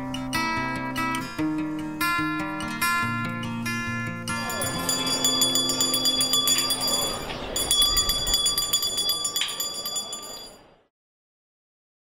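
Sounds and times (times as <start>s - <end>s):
guitar music: 0.0s - 9.1s
crowd voices: 3.1s - 10.8s
handbell ringing: 4.4s - 10.7s.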